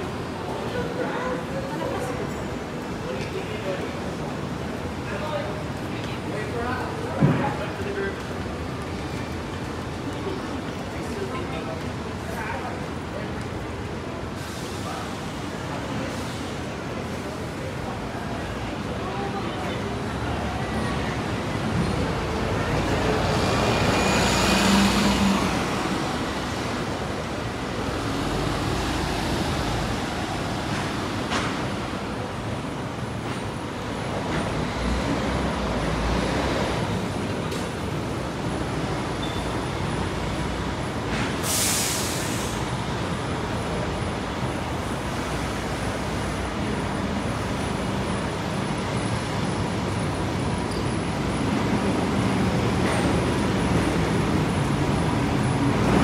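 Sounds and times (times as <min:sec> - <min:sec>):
buses running: 0:00.0 - 0:56.0
traffic noise: 0:00.0 - 0:56.0
air brake hiss: 0:41.2 - 0:42.7.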